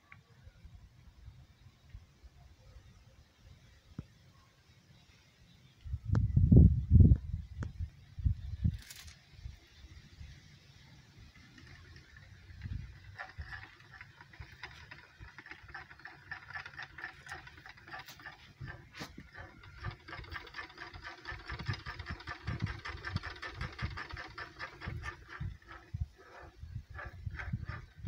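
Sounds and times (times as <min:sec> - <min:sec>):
spinning wheel clicking rattle: 0:11.3 - 0:28.0.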